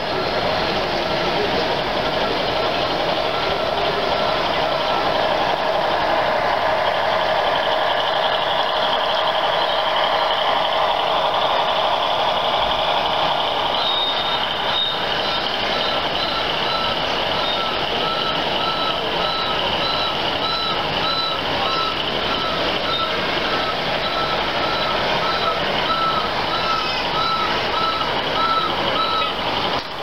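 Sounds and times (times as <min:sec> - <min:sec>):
crowd din in a hall: 0:00.0 - 0:30.0
model trains rolling on tracks: 0:00.0 - 0:30.0
short high beeps: 0:13.8 - 0:29.4.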